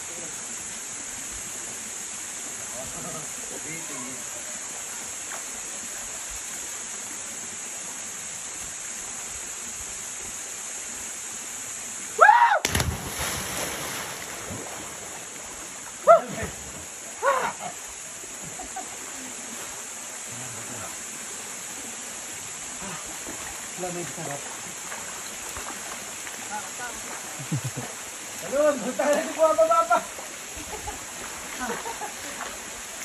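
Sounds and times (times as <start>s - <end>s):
small waterfall rushing: 0.0s - 33.0s
loud splash into water: 12.6s - 15.2s.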